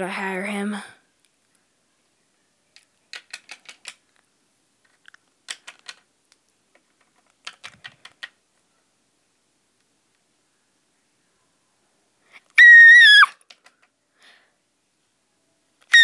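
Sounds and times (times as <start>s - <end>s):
plastic figurines tapping: 2.8s - 4.0s, 5.0s - 6.1s, 6.7s - 8.4s, 13.4s - 13.9s.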